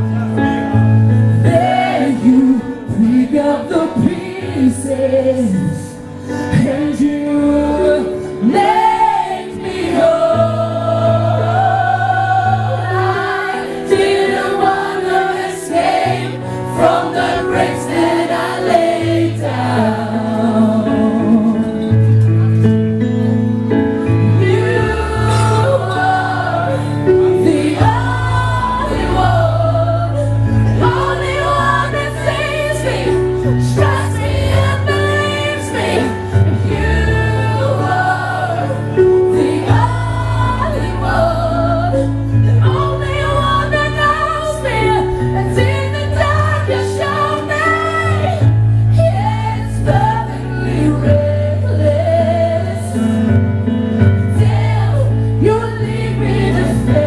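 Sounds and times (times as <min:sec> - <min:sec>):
keyboard chords: 0:00.0 - 0:57.0
woman singing a ballad: 0:01.4 - 0:09.3, 0:39.7 - 0:53.3, 0:55.3 - 0:57.0.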